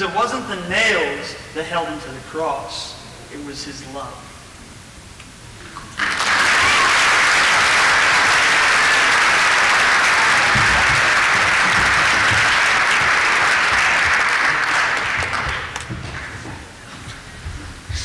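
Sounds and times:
audience applauding: 5.9s - 16.7s.

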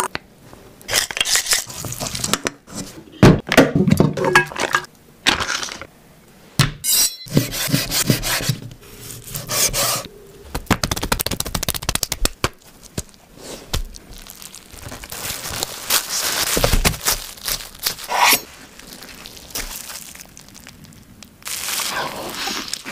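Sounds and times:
knife sawing on cutting board: 7.3s - 8.6s, 9.3s - 10.1s
plastic wrap rustling: 10.6s - 22.9s.

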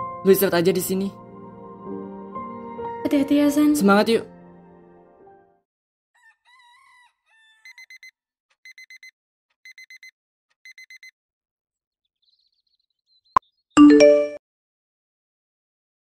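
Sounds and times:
rooster crowing: 6.2s - 7.9s
alarm clock beeping: 7.8s - 8.1s, 8.7s - 9.1s, 9.7s - 10.1s, 10.7s - 11.1s.

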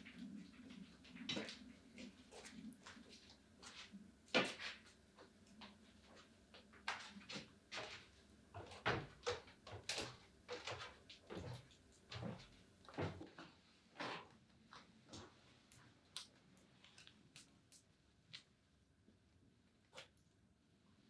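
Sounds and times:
footsteps on wooden stairs: 6.9s - 13.3s.

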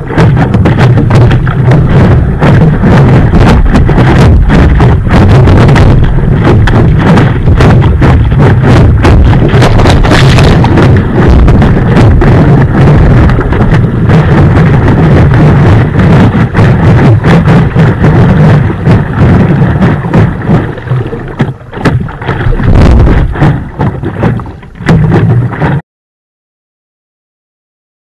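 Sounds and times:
water splashing against board: 0.0s - 25.8s
wind buffeting microphone: 0.0s - 25.8s.

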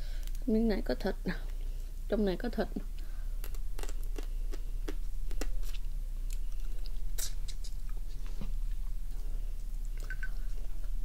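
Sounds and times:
steady low hum: 0.0s - 11.0s
biting and sucking crab meat: 3.4s - 8.8s.

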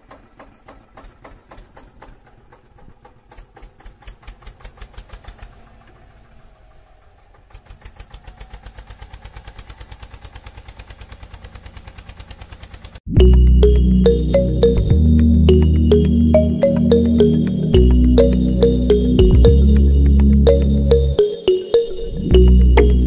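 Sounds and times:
tractor engine chugging: 0.0s - 13.0s.

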